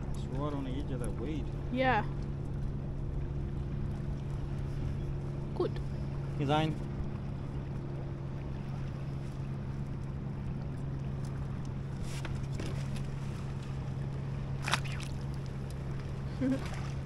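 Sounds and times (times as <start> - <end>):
boat motor running: 0.0 - 17.0
faint ticks: 11.1 - 11.8.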